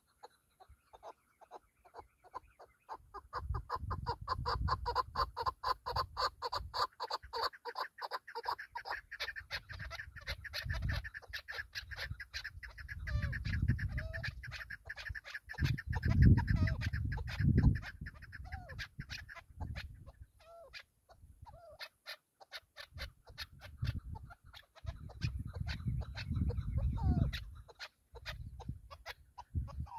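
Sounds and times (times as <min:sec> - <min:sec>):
wind rumbling on microphone: 0:03.0 - 0:06.8, 0:09.4 - 0:20.4, 0:22.9 - 0:29.9.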